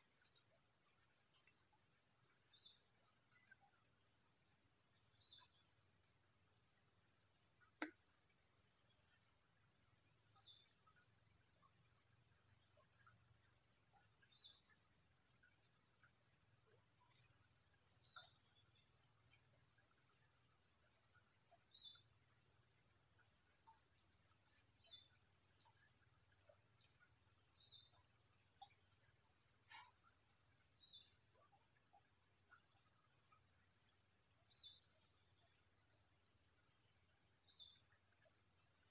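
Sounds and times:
high-pitched insect chorus: 0.0s - 38.9s
faint chirps: 2.5s - 3.9s, 5.2s - 5.7s, 10.2s - 17.4s, 18.0s - 18.4s, 24.8s - 28.9s, 29.5s - 33.6s, 34.4s - 34.9s.

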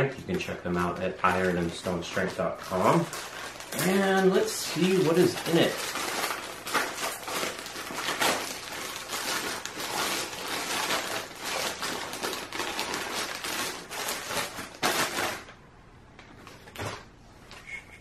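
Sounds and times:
plastic bag crinkling and tearing: 0.3s - 15.6s.

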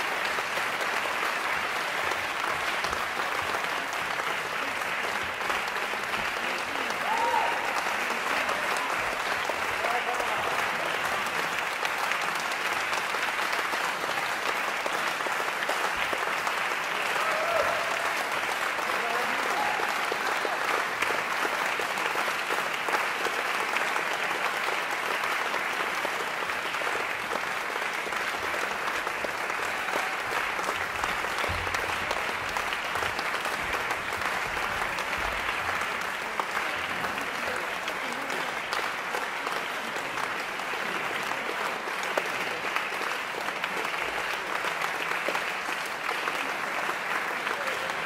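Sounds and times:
audience applauding: 0.0s - 48.0s.

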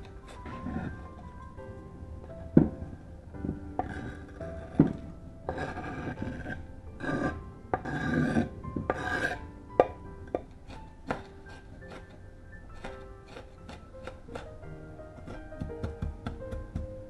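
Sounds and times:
knife scraping cutting board: 0.2s - 1.0s, 3.8s - 9.4s, 10.6s - 12.2s, 12.8s - 14.5s
knife knocking on board: 15.3s - 17.0s.

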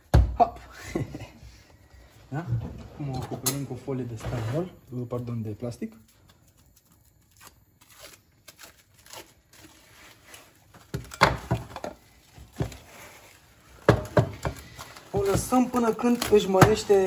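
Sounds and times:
cling film crinkling and tearing: 5.7s - 13.8s, 14.6s - 17.0s.

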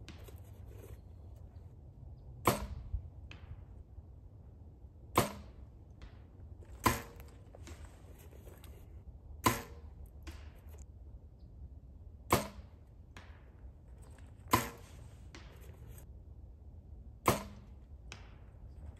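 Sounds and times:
arrow hitting target: 2.4s - 3.7s, 5.1s - 7.9s, 9.4s - 10.8s, 12.3s - 13.5s, 14.2s - 16.0s, 17.2s - 18.5s.

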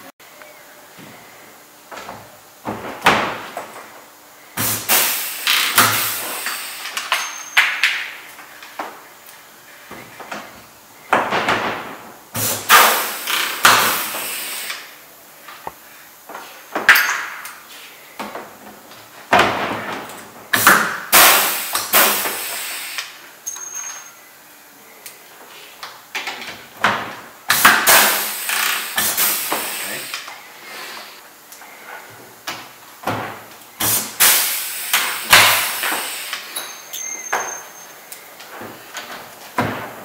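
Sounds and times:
pneumatic rivet gun snapping: 12.4s - 14.9s, 20.6s - 23.1s, 27.5s - 30.3s, 33.8s - 36.7s.

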